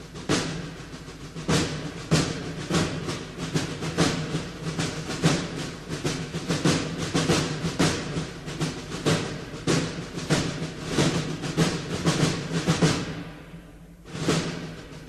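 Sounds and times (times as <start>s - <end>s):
background music with drum strikes: 0.0s - 15.0s.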